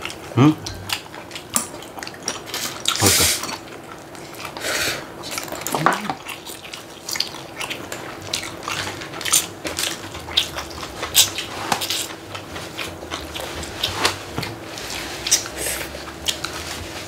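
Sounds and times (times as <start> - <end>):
noodles slurped and chewed: 0.0 - 17.0.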